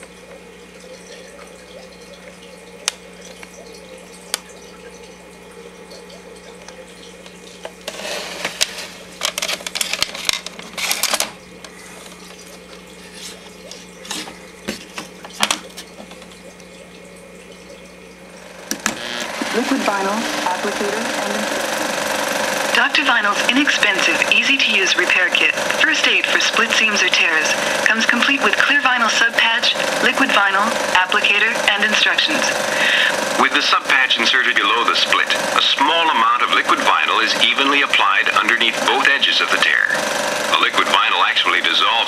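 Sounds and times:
film cartridge scraping and clattering: 7.9s - 12.4s.

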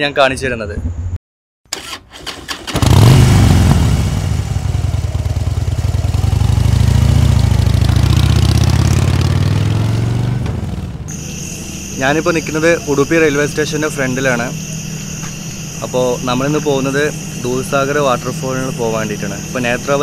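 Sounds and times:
motorcycle engine starting and idling: 1.7s - 11.1s.

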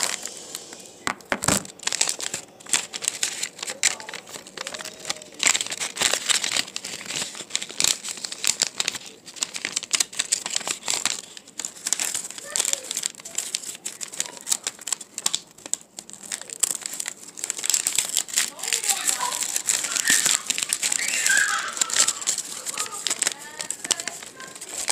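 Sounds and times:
paper crumpling and rustling: 0.0s - 24.9s.

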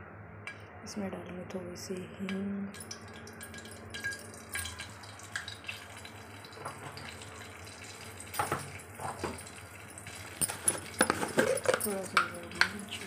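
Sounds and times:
hot oil sizzling in a pan: 2.8s - 11.4s.

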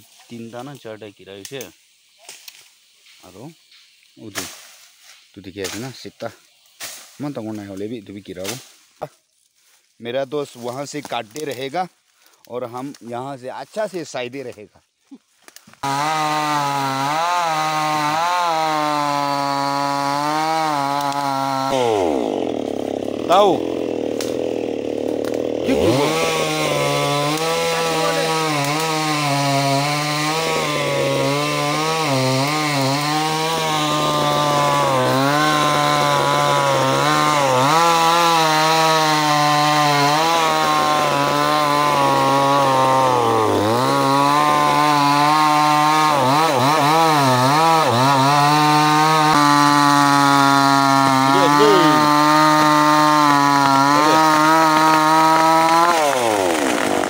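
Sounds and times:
chainsaw cutting a tree: 15.8s - 57.0s.

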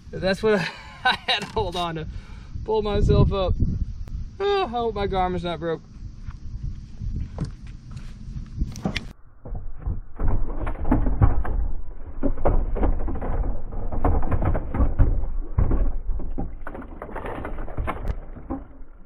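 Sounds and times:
knocks and thumps on deck: 8.8s - 18.8s.

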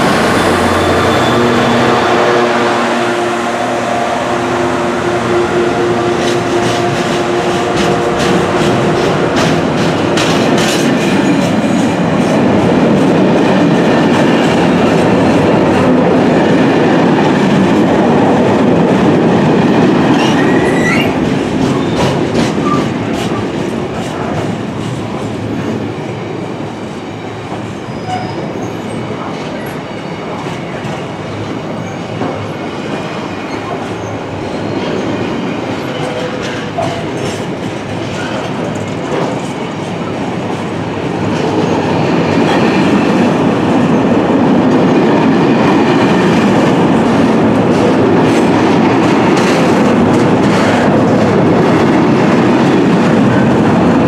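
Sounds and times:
diesel locomotive engine: 0.0s - 54.0s
wagons rumbling on track: 0.0s - 54.0s
wheel squeal: 27.9s - 29.0s.

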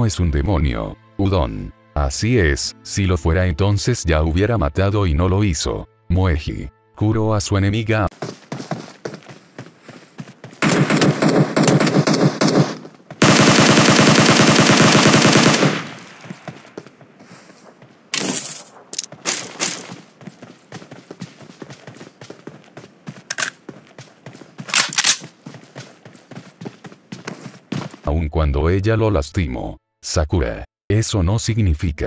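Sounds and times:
rapid sharp cracks: 10.6s - 16.4s, 18.8s - 20.0s.

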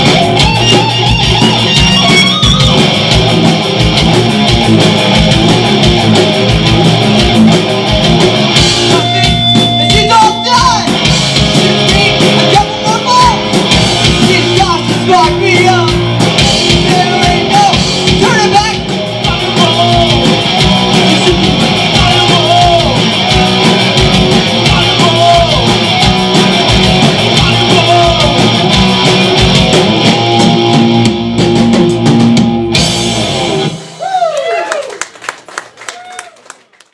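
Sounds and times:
distorted electric guitar: 0.0s - 34.0s
live rock band playing: 0.0s - 36.0s
person singing: 11.6s - 13.4s, 16.7s - 23.7s, 24.5s - 28.6s.

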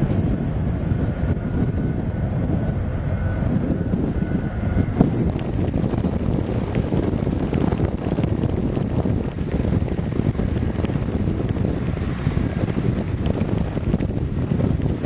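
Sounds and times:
airliner engines: 0.0s - 15.0s
wind buffeting microphone: 0.0s - 15.0s.

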